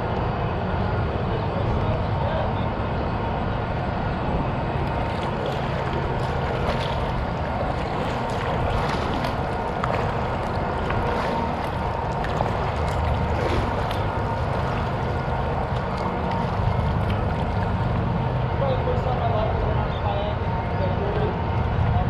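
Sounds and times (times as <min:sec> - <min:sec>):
wind on microphone: 0:00.0 - 0:18.6
faint steady whine: 0:00.0 - 0:22.0
water lapping against hull: 0:00.3 - 0:22.0
kayak paddle splashing: 0:04.7 - 0:18.7.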